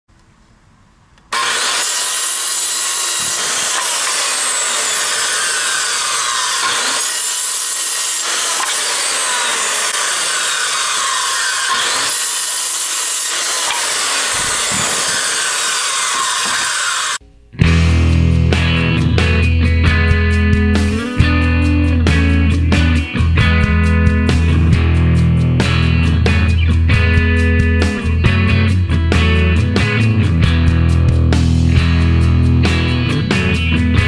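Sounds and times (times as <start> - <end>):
circular saw cutting wood: 1.3 - 17.2.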